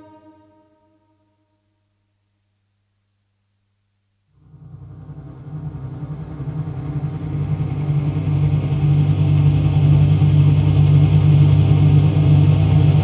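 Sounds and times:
low steady drone: 4.4s - 13.0s.

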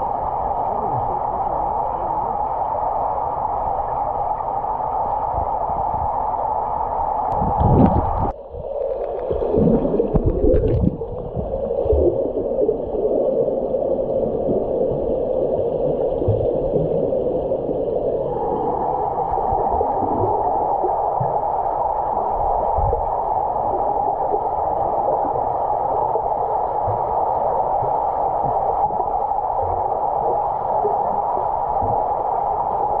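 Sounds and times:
muffled underwater hiss and hum: 0.0s - 33.0s
water gurgling and knocking: 7.3s - 13.0s.

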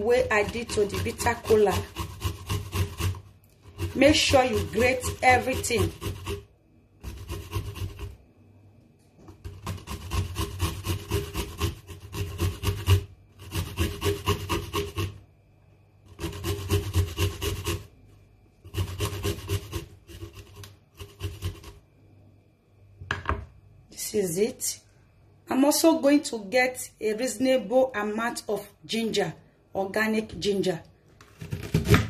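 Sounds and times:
garlic scraping on metal grater: 0.0s - 8.2s, 9.4s - 15.2s, 16.1s - 17.9s, 18.6s - 21.8s.

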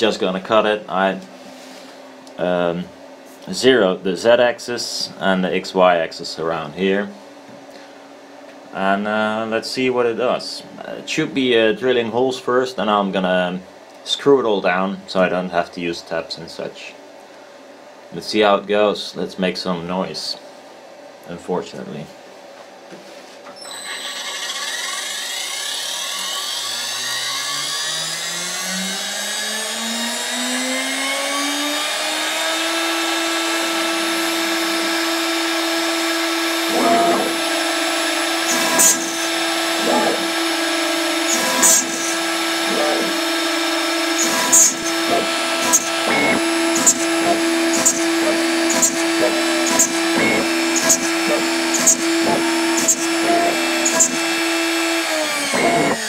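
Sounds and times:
router bit drilling holes: 23.6s - 56.0s
router spindle whining: 23.6s - 56.0s.

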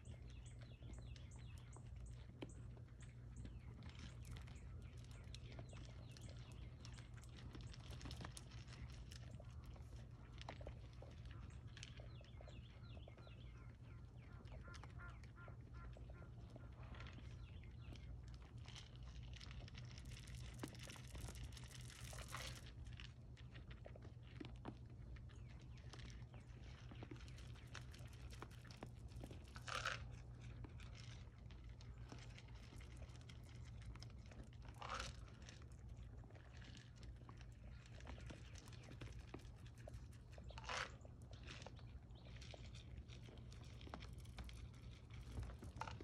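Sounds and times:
deer chewing feed: 0.0s - 46.0s.

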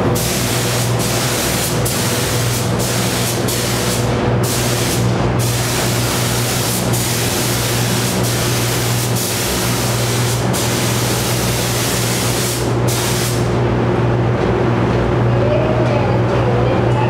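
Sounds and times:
steady low hum: 0.0s - 17.0s
paint spray gun hissing: 0.2s - 13.5s.

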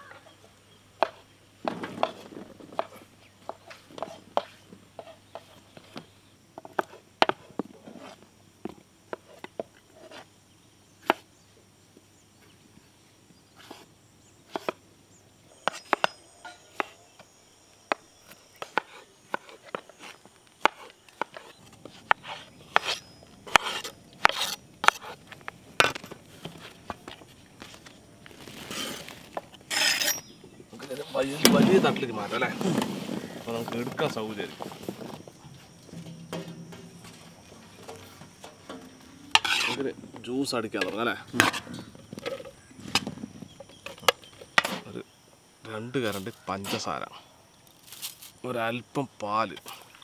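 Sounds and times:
knives chopping on wooden boards: 15.7s - 17.0s, 17.9s - 25.2s.

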